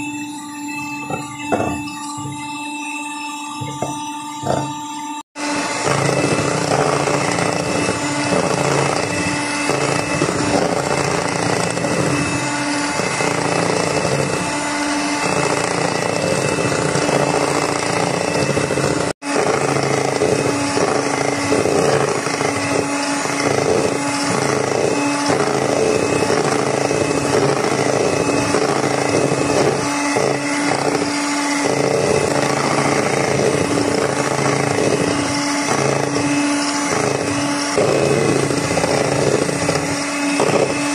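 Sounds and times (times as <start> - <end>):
electric hand mixer whipping cream: 0.0 - 40.9.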